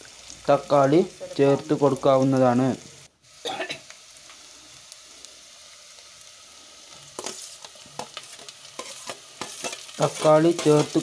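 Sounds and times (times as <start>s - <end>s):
onions sizzling in oil: 0.0s - 11.0s
spoon knocking and scraping pot: 7.2s - 11.0s.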